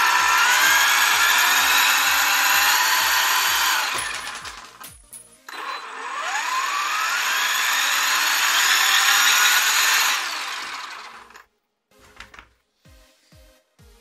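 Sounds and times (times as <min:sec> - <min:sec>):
electric motor and gears whining: 0:00.0 - 0:04.8, 0:05.5 - 0:11.5.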